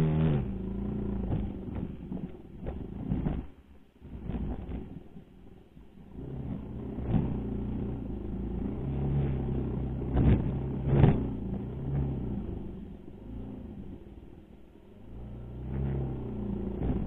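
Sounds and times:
dirt bike engine revving: 0.0 - 2.0, 6.2 - 12.3.

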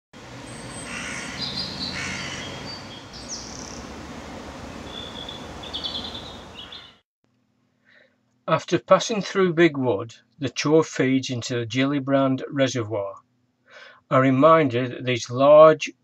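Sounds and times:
bird calls and chirps: 0.4 - 3.9, 4.8 - 7.0.

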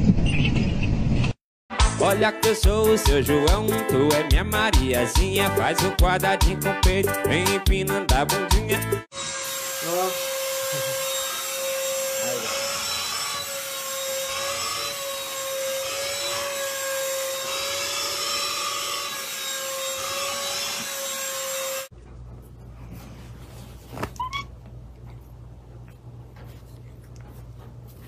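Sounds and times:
handheld vacuum cleaner running: 9.1 - 15.0.

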